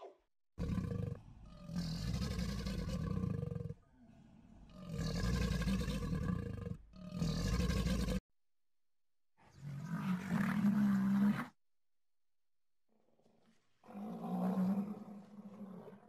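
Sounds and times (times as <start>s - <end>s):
crocodile growling: 0.6s - 8.2s.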